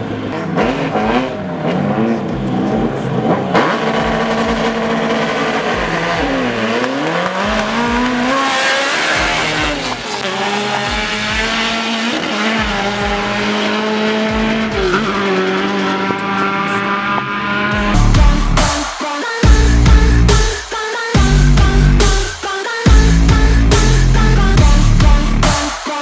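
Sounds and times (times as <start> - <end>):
car engine accelerating: 0.0 - 18.7
loud bass-heavy music: 0.0 - 26.0.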